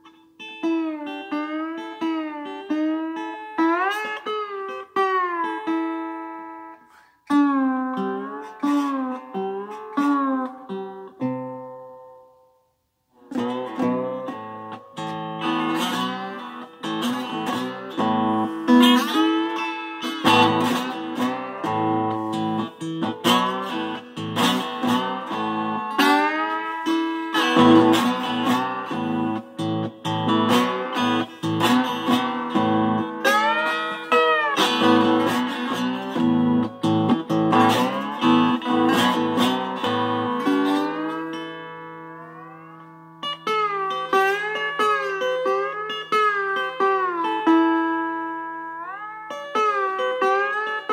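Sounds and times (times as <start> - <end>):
electric guitar playing: 0.0 - 12.5, 13.2 - 50.9.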